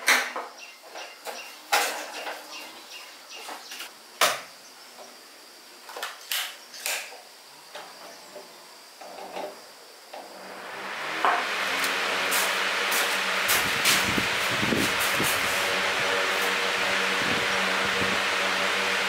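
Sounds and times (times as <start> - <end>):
sizzling hiss: 11.3 - 18.2.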